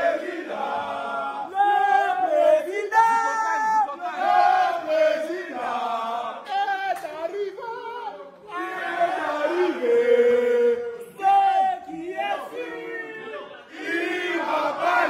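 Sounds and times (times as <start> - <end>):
men singing a chant together: 4.0 - 15.0.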